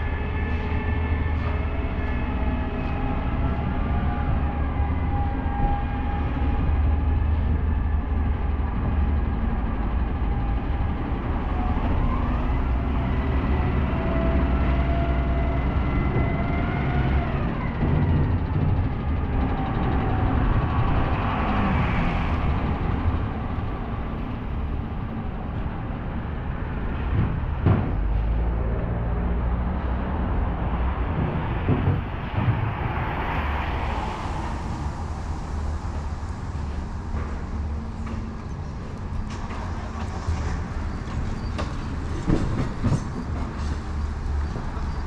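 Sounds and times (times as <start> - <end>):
engine whine: 0.0 - 45.0
heavy vehicle engines running: 0.0 - 45.0
traffic on wet road: 27.9 - 45.0.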